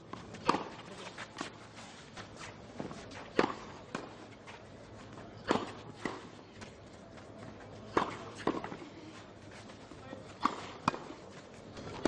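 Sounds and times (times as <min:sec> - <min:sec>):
tennis racket hitting ball: 0:00.1 - 0:01.5, 0:02.8 - 0:04.2, 0:05.4 - 0:06.3, 0:07.9 - 0:08.8, 0:10.4 - 0:11.2.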